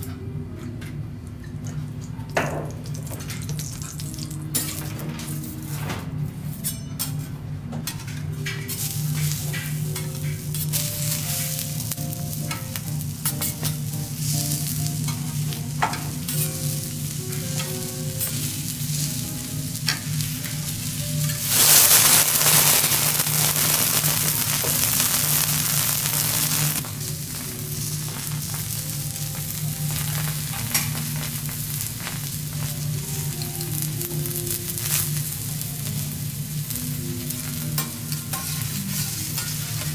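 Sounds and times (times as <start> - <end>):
vegetables sizzling on a griddle: 8.6 - 39.9
metal spatulas scraping a griddle: 14.6 - 19.1, 37.4 - 39.9.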